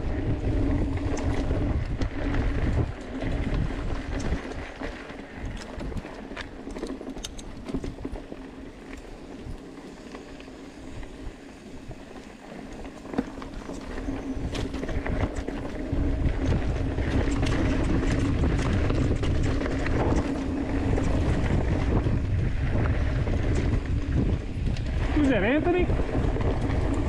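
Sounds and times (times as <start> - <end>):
wind rushing over microphone: 0.0 - 6.5, 13.4 - 27.0
bike clicks and rattles: 0.0 - 27.0.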